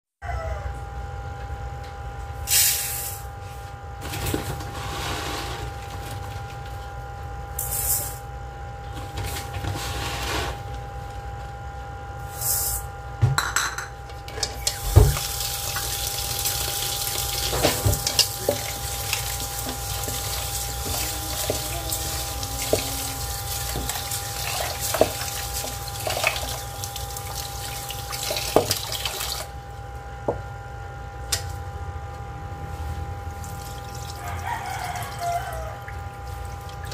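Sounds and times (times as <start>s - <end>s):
tap water running into pot: 14.5s - 29.5s.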